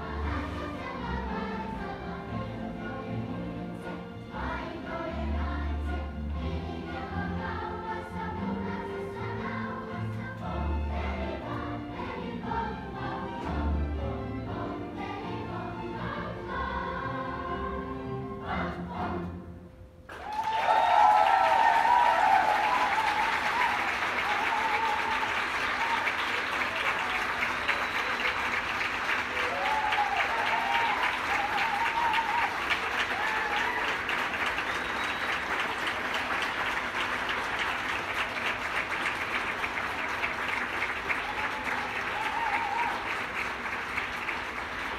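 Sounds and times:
music: 0.0 - 20.3, 21.1 - 44.9
crowd applauding: 20.1 - 44.9.

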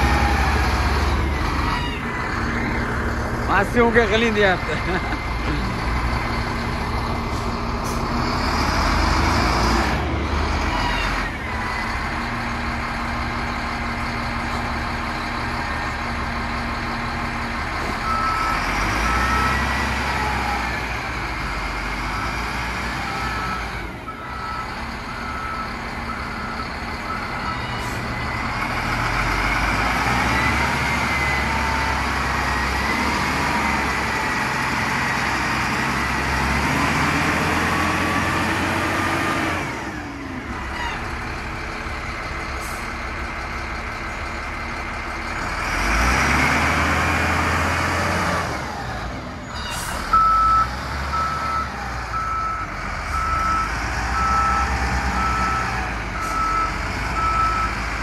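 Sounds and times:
wheel loader diesel engine: 0.0 - 58.0
reverse alarm beeping: 50.1 - 57.8.

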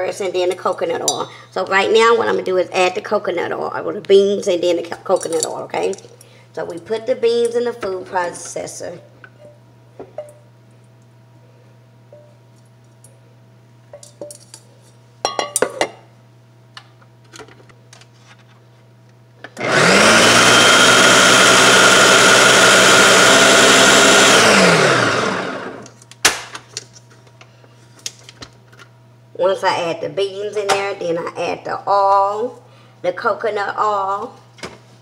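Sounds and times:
food processor motor running: 19.6 - 25.9.

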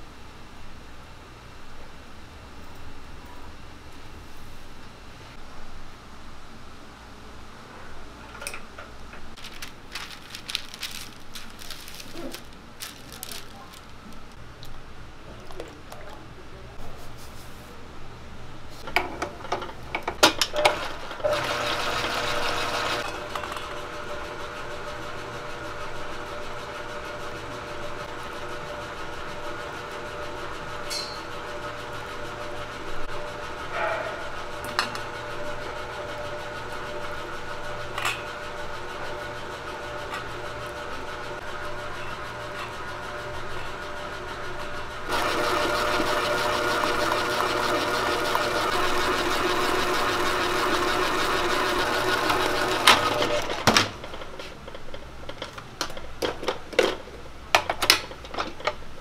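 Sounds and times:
stand mixer motor whine: 20.8 - 33.6, 34.5 - 53.7.

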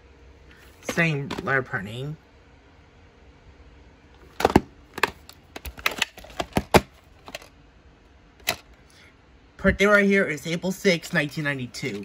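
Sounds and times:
plastic case clicks and knocks: 4.4 - 7.5.

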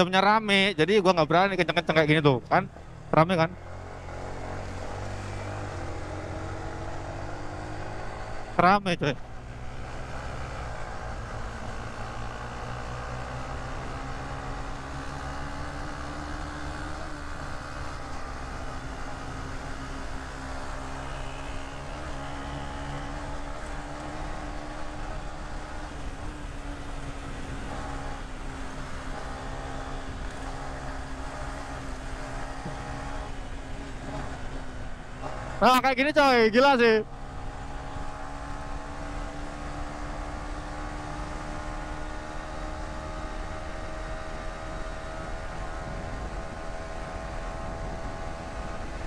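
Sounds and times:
motorcycle engine cruising: 0.0 - 49.0.

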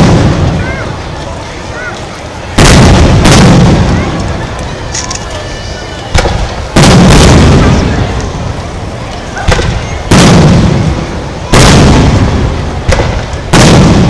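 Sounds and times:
firework shells booming: 0.0 - 0.7, 2.5 - 4.4, 6.1 - 8.5, 9.4 - 14.0.

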